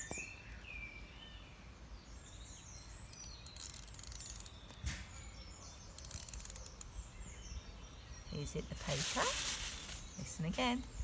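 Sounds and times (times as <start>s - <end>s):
faint birdsong: 0.0s - 11.0s
wind-up toy ratcheting clicks: 3.5s - 4.5s, 6.0s - 6.9s.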